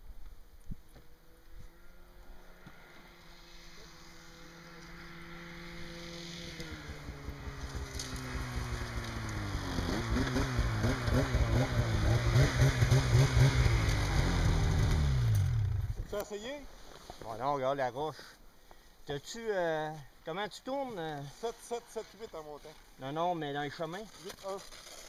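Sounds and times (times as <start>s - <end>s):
snowmobile engine running: 1.7s - 16.2s.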